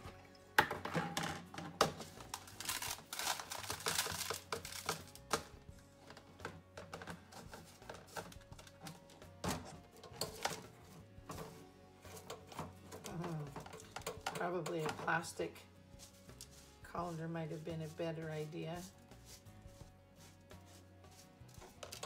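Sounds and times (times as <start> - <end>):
seeds rattling in metal sieve: 2.0 - 5.3, 20.7 - 22.0
seeds scraped into plastic tub: 16.0 - 22.0.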